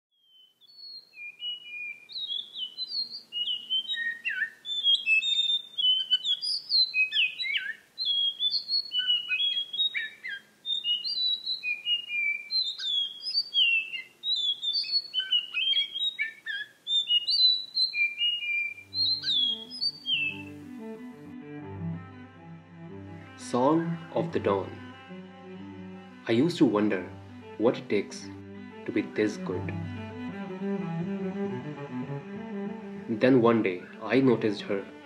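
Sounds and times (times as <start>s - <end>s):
thrush singing whistled phrases: 0.2s - 20.6s.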